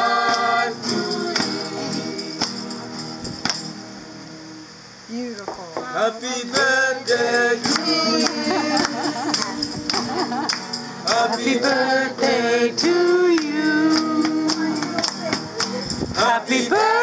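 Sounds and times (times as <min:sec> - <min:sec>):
acoustic guitar: 0:00.0 - 0:17.0
rhythmic hand clapping: 0:00.2 - 0:03.8, 0:06.6 - 0:17.0
man singing: 0:05.8 - 0:10.2, 0:11.0 - 0:15.0, 0:16.2 - 0:17.0.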